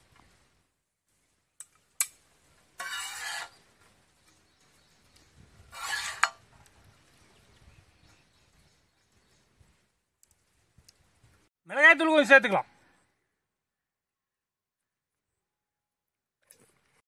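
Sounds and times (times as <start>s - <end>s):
spatula scraping noodles in pan: 2.8s - 3.6s, 5.7s - 6.5s.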